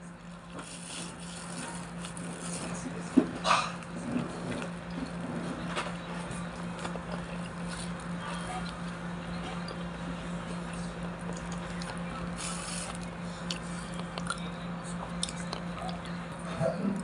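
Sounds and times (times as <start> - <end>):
chewing crispy food: 0.0 - 17.0
low hum: 0.0 - 17.0
fried wrapper crackling: 0.2 - 3.0, 11.3 - 13.1.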